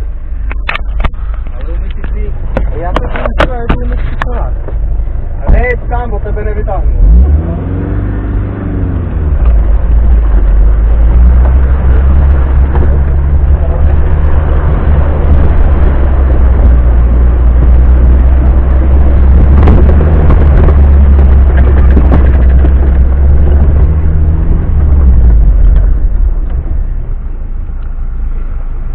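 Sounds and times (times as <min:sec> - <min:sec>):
car engine running under load: 0:00.0 - 0:28.9
body rattles and stone knocks: 0:19.6 - 0:23.8.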